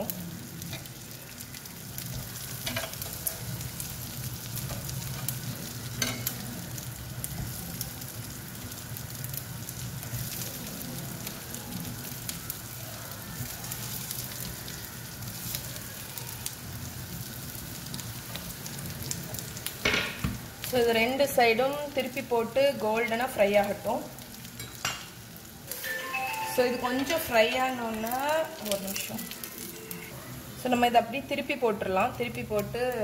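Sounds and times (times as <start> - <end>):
oil sizzling with crackles: 0.0 - 33.0.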